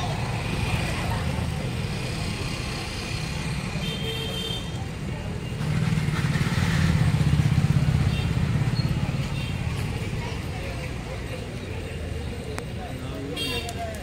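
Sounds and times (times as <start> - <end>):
street traffic noise: 0.0 - 14.0.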